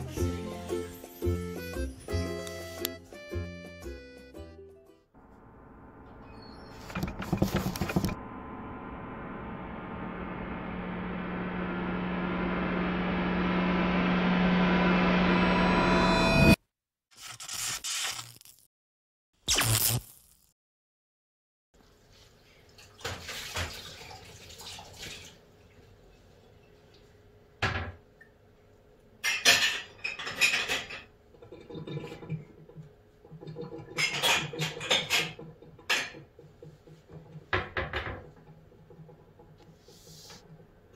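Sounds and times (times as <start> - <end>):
objects clattering and scraping: 6.7 - 8.2, 29.3 - 40.6.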